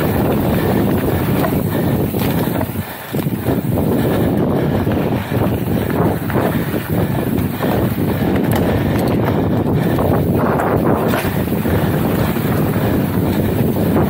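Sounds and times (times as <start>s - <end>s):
tyres rolling on dirt trail: 0.0s - 14.0s
wind buffeting microphone: 0.0s - 14.0s.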